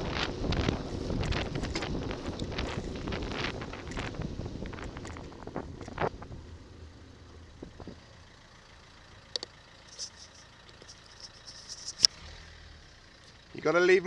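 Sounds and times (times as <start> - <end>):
wind noise on microphone: 0.0 - 6.5, 7.6 - 8.0
car engines idling: 0.0 - 14.0.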